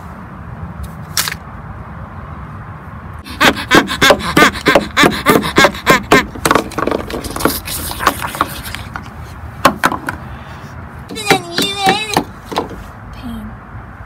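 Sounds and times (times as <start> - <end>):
toy figures tapping on wood: 3.4 - 10.2, 11.1 - 12.8.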